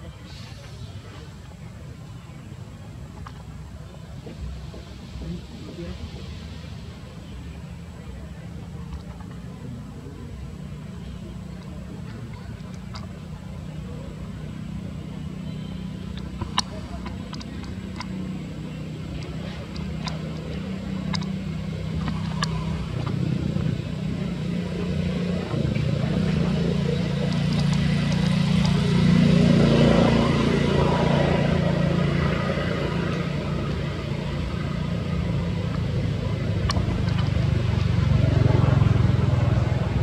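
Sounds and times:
motor vehicle engine hum: 0.0s - 40.0s
faint sharp clicks: 11.6s - 13.2s, 16.1s - 18.2s, 19.0s - 23.2s, 35.6s - 37.7s.

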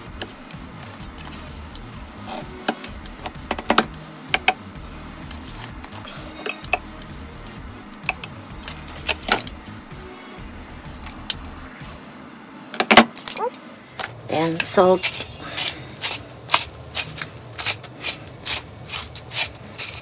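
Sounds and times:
background music: 0.0s - 20.0s
metal tongs clicking: 6.4s - 9.4s.

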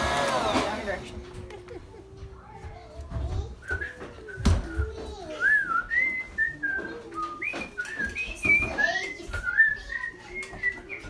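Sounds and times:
light knocks from people moving: 1.2s - 11.0s
person whistling a tune: 3.6s - 11.0s.

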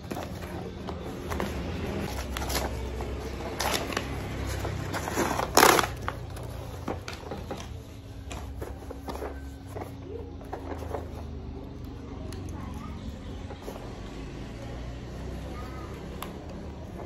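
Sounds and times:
cardboard parcel being torn open: 0.0s - 7.4s.

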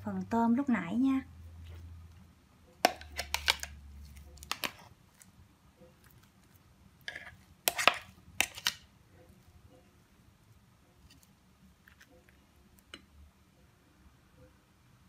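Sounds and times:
utensil scraping plastic bowl: 7.0s - 8.8s.

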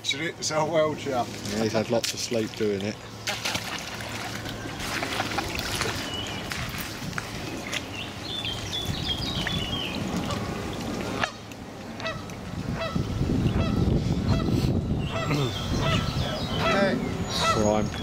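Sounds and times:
water splashing: 1.2s - 12.9s
wind on microphone: 5.5s - 11.4s, 12.0s - 18.0s
geese honking: 12.0s - 14.5s, 15.1s - 17.9s.

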